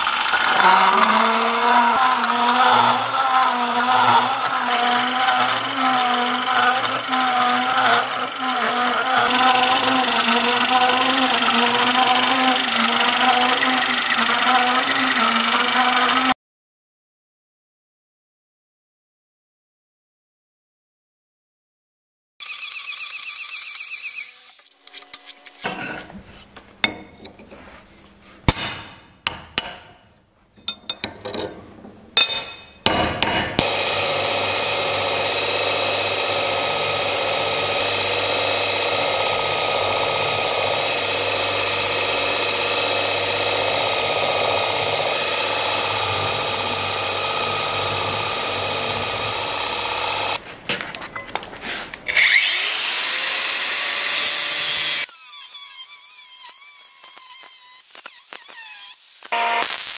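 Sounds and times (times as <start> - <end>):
angle grinder starting up: 0.0 - 16.4, 22.4 - 25.6, 33.6 - 50.4, 52.1 - 59.9
belt grinder grinding steel: 0.0 - 16.4, 22.4 - 25.8, 33.6 - 50.4, 52.1 - 59.9.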